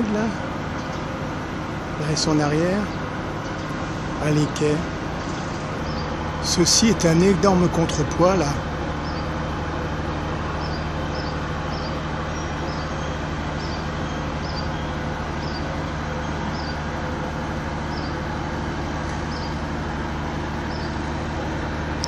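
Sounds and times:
machinery humming drone: 0.0s - 22.0s.

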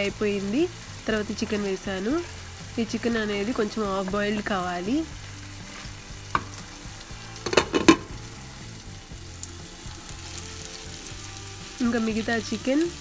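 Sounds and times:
chicken sizzling in a pot: 0.0s - 13.0s
glass lid knocking on pot: 7.5s - 8.1s.

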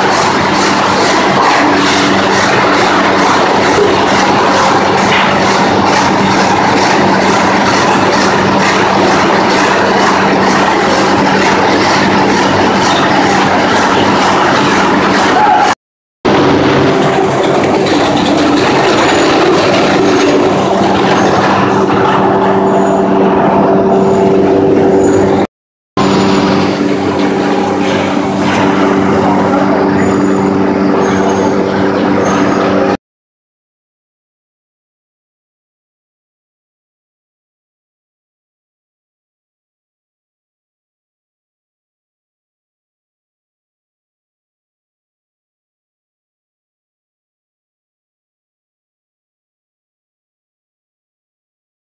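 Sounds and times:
conveyors rattling: 0.0s - 33.0s
motors humming: 0.0s - 33.0s.

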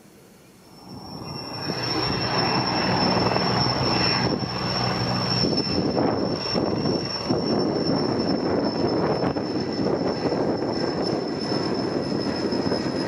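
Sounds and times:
high turbine whine: 0.0s - 13.0s
helicopter rotor beat: 0.6s - 13.0s.

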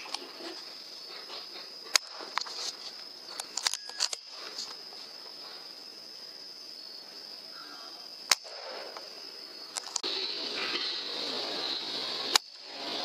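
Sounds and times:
airgun shot: 8.3s - 9.1s
high-pitched whine: 8.9s - 13.0s.

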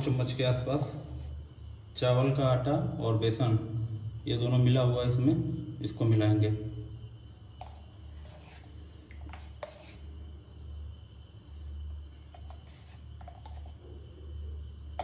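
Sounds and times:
steady low hum: 0.0s - 15.0s
plastic spoon scraping plastic bowl: 7.6s - 10.1s, 12.3s - 13.8s.

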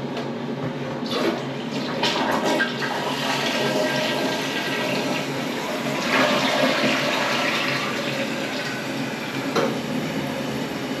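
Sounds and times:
toilet flushing: 1.0s - 11.0s.

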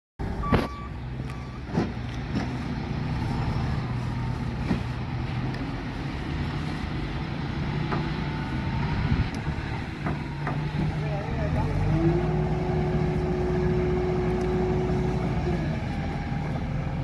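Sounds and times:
diesel engine running: 0.2s - 17.0s
short beep: 0.4s - 1.7s.

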